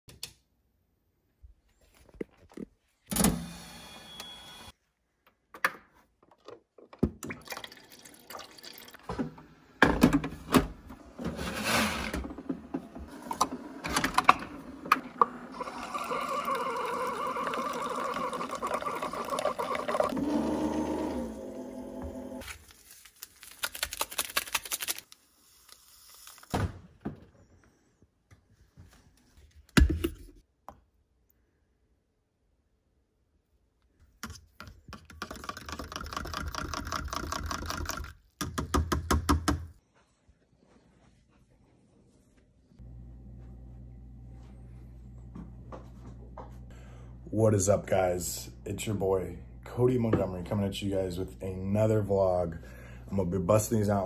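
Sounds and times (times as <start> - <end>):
coffee maker hissing and trickling: 15.6 - 22.4.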